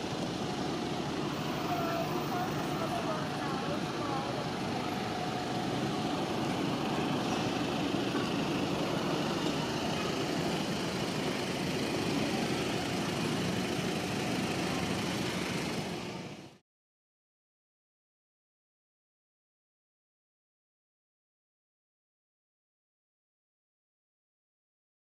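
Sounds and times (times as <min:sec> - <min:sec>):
urban street noise: 0:00.0 - 0:16.6
vehicle engine running: 0:00.0 - 0:16.6.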